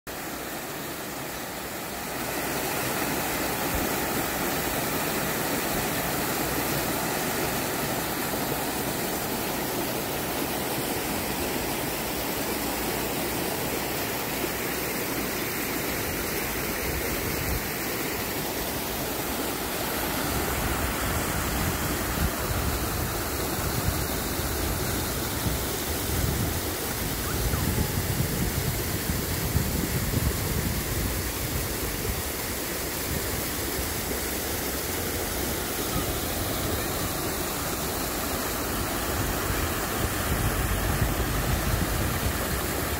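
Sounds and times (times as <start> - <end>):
water rushing over rocks: 0.1 - 42.9.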